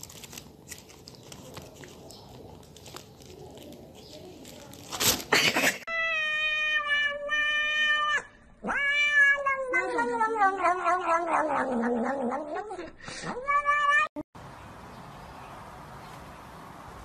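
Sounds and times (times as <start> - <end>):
cat meowing: 5.9 - 14.2.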